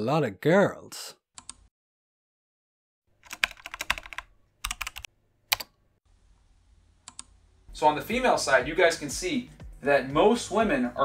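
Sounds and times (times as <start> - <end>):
computer keyboard typing: 3.2 - 5.7.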